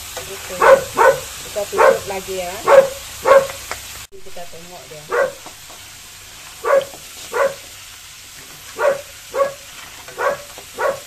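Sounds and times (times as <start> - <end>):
dog barking: 0.6 - 3.6, 5.1 - 5.4, 6.6 - 7.6, 8.7 - 11.0.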